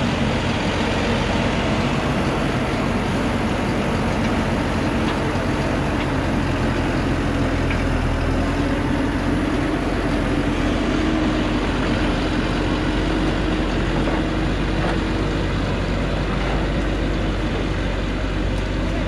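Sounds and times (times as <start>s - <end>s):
truck diesel engine under load: 0.0s - 19.0s.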